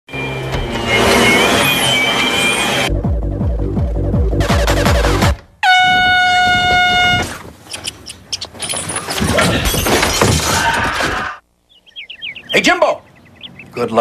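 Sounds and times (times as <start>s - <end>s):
air horn blast: 5.6s - 7.4s
clattering crashing noise: 8.6s - 11.3s.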